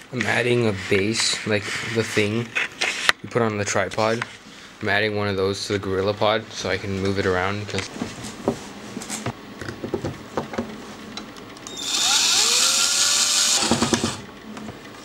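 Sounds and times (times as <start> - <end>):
loud grinding rasp: 11.7 - 14.3.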